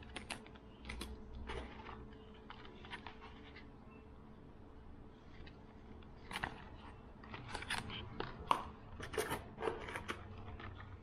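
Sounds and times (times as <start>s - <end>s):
plastic packaging crinkling: 0.0s - 3.8s.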